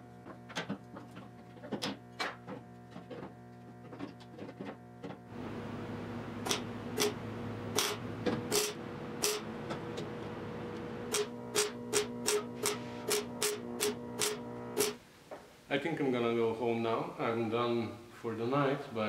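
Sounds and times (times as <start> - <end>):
welder humming: 5.3 - 15.0
welder crackling bursts: 6.3 - 9.6, 10.6 - 15.0.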